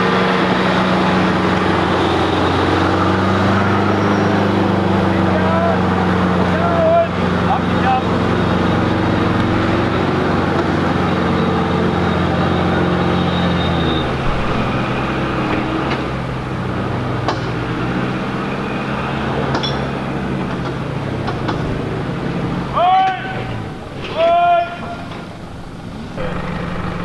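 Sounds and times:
vehicle engine running: 0.0 - 27.0.

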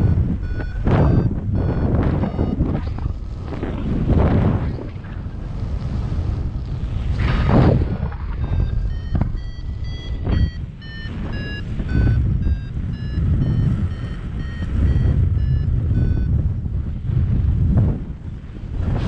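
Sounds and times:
variometer short beeps: 0.0 - 3.3, 8.4 - 16.5
wind buffeting microphone: 0.0 - 19.0.

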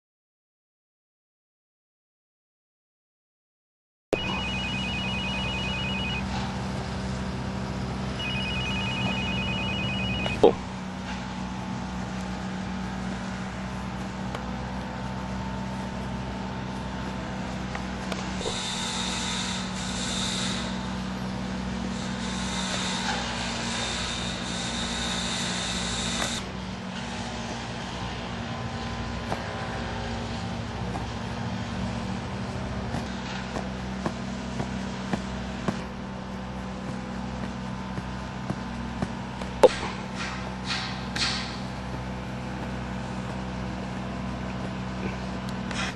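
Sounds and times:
rapid pulsed alarm beeps: 4.2 - 6.3, 8.2 - 10.5
steady low hum: 4.2 - 45.9.

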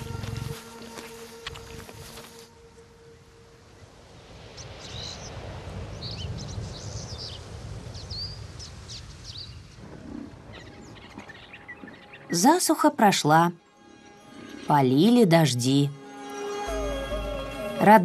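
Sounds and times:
birds chirping and calling: 10.5 - 12.7.

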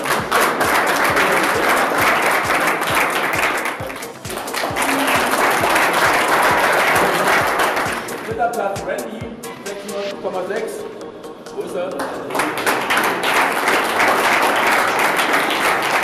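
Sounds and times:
small crowd applauding: 0.0 - 8.4, 11.9 - 16.0
background music with steady beat: 0.0 - 16.0.

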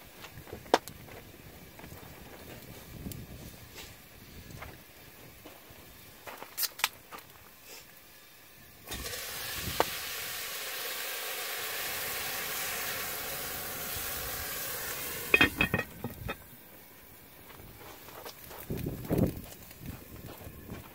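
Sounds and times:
liquid sizzling in hot pot: 2.9 - 17.3.

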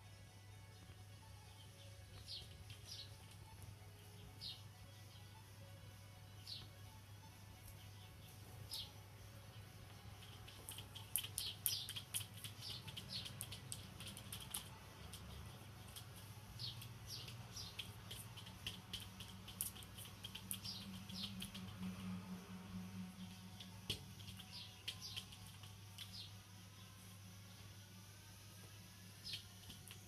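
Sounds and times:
low steady hum: 0.0 - 30.0
kitten claws tapping on glass and wood: 17.6 - 21.7.

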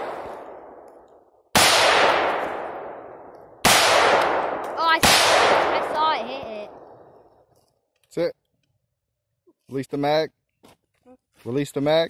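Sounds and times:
rifle shots echoing: 0.0 - 7.2.

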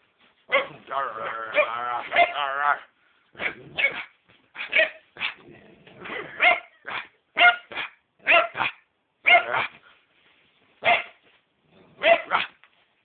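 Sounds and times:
dog barking: 0.5 - 2.4, 3.4 - 5.4, 6.0 - 9.8, 10.8 - 11.2, 11.9 - 12.6.

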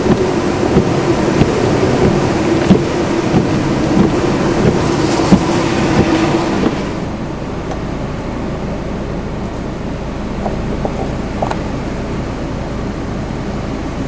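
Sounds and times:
steady wind whistle: 0.0 - 7.6
strong wind buffeting microphone: 0.0 - 9.4, 10.0 - 14.0.

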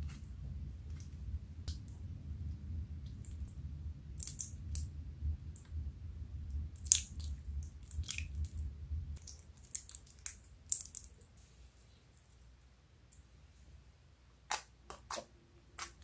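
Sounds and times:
slime popping and crackling: 4.2 - 4.9, 6.7 - 8.6, 9.2 - 11.2.

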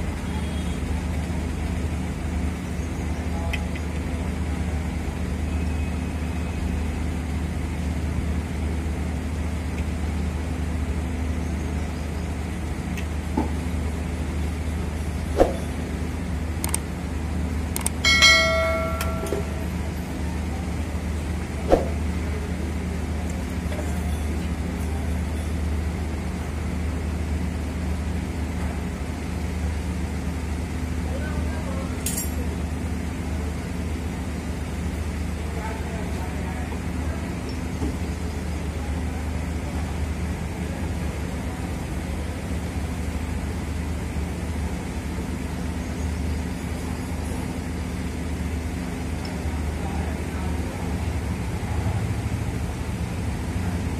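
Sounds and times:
low mechanical hum: 0.0 - 53.9
wrench striking metal cylinder: 18.0 - 19.7.

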